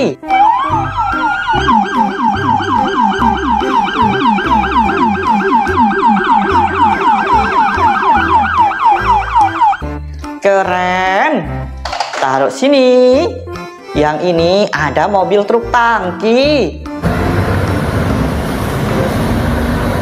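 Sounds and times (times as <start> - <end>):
police siren yelping: 0.2 - 10.0.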